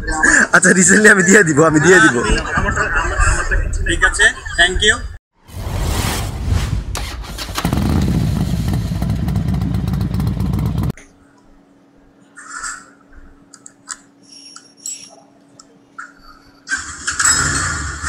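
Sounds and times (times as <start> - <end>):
loud motorcycle engine: 7.0 - 11.0.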